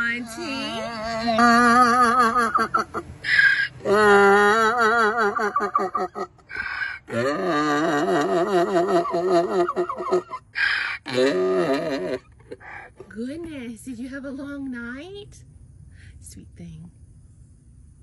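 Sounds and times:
donkey braying: 0.0s - 13.1s.

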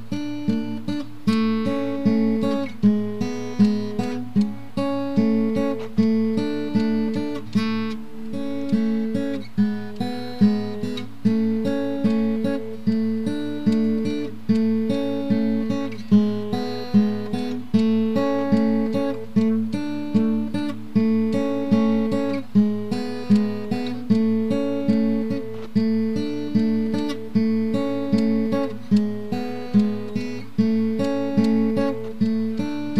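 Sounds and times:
plucked acoustic guitar: 0.0s - 32.9s.

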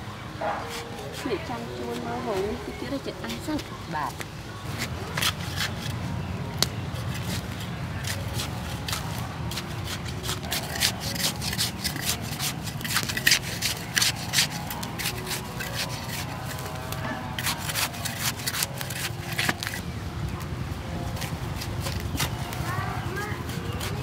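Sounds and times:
hand hoe scraping dry soil: 0.4s - 6.0s, 6.7s - 19.8s, 21.1s - 24.0s
weeds being torn up: 4.7s - 19.8s.

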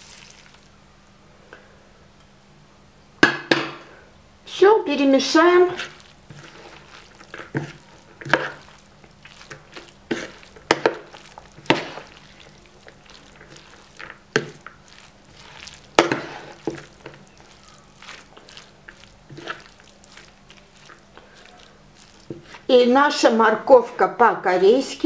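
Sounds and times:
moist rustle of carrot stirring: 5.1s - 23.0s.

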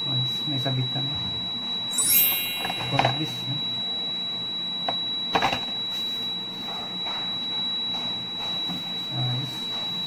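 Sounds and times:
steady high-pitched whine: 1.6s - 8.4s.

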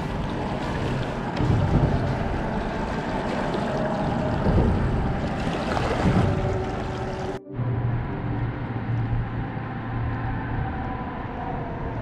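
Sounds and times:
water lapping against rocks: 0.0s - 7.4s
wind rumbling on microphone: 0.0s - 12.0s.

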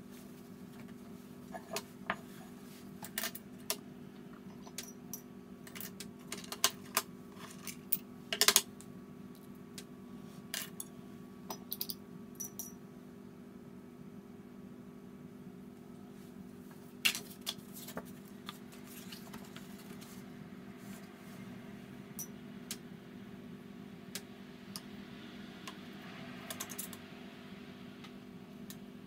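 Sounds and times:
steady low hum: 0.0s - 29.0s
metallic clinks of paint tin: 11.5s - 12.8s.

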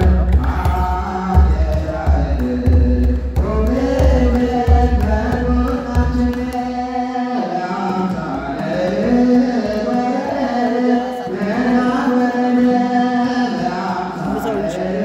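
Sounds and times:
large drum beating: 0.0s - 6.5s
group singing a hymn: 0.0s - 15.0s.

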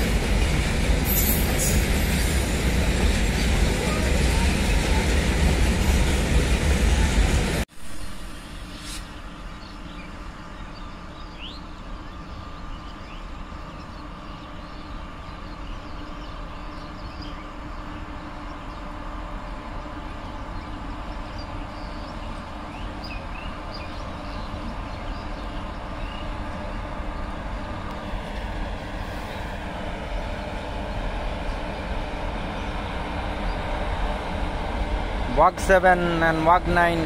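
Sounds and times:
freight train rumbling: 0.0s - 37.0s
birds chirping: 9.6s - 27.7s.

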